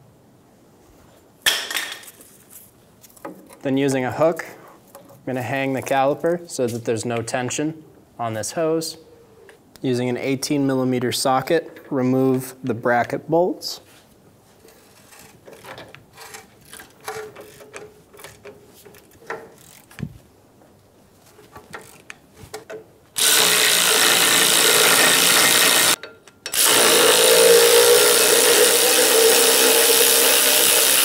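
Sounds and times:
hand ratchet clicking: 14.8 - 20.0, 21.6 - 31.0
cordless power tool running: 23.2 - 31.0.

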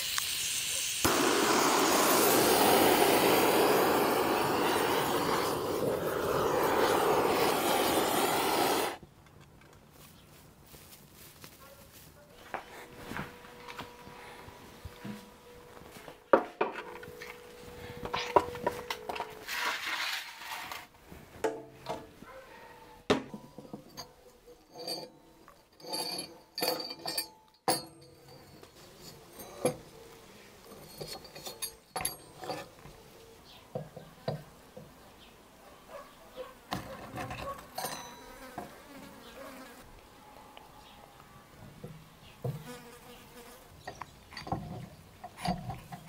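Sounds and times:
metal clinks and knocks: 23.2 - 30.0, 30.7 - 33.0, 36.8 - 38.6, 43.8 - 46.0
insect buzzing: 38.2 - 40.2, 42.4 - 43.9.

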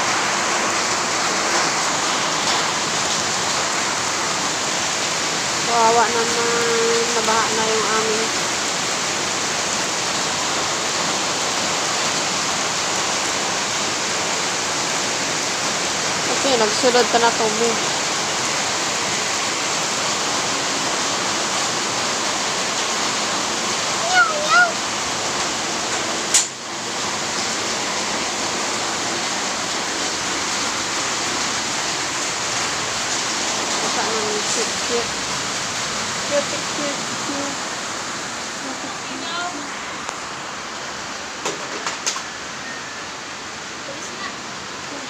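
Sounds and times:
heavy rain on pavement: 0.0 - 45.0.

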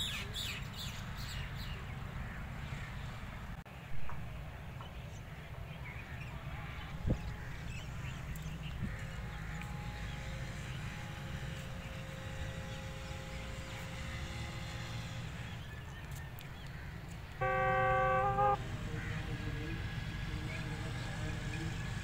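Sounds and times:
faint distant hum: 4.1 - 22.0
loud horn blast: 17.4 - 18.9.

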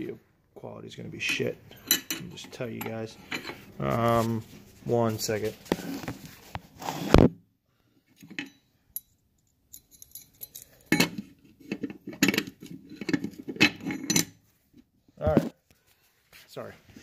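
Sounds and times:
small metal parts clinking: 8.2 - 14.3.

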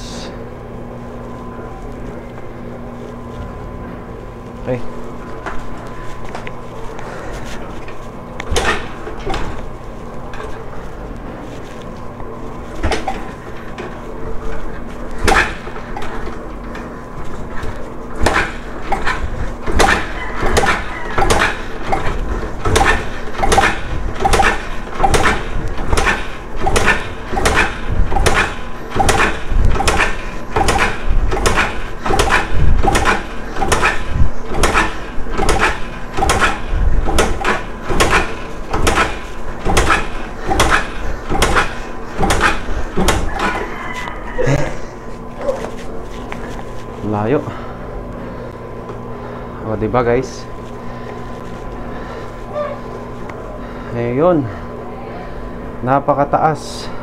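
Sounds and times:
engine cranking with mechanical knock: 18.2 - 43.6.

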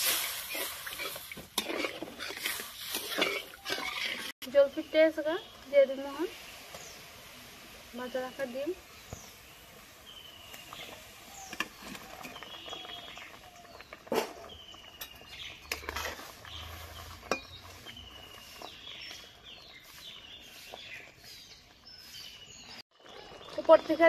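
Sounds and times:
metal spatula scraping pan: 0.0 - 4.4, 15.6 - 18.2
small birds chirping: 2.4 - 24.0.

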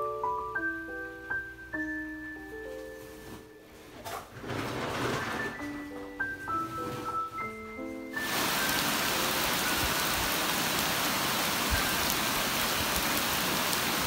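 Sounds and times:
rain on foliage: 8.2 - 14.0
raindrops ticking: 8.2 - 14.0.

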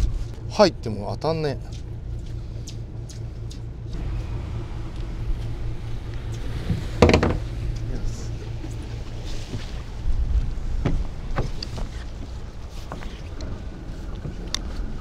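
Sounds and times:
boat engine humming: 0.0 - 15.0
loud knock: 7.0 - 7.4.

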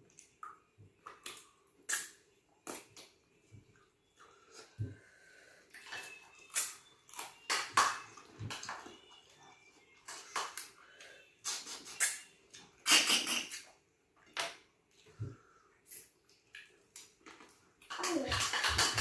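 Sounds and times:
mouth smacking and slurping: 11.4 - 13.8.

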